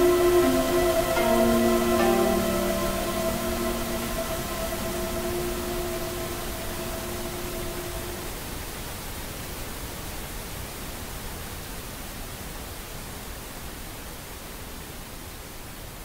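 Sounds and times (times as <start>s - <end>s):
sustained chord of held tones: 0.0s - 8.4s
pink noise: 0.0s - 15.0s.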